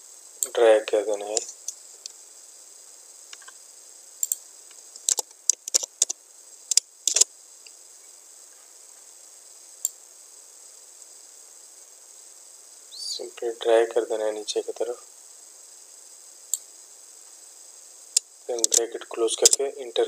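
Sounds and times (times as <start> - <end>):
faint steady hiss: 0.0 - 20.0
keyboard and mouse clicking: 18.6 - 18.8.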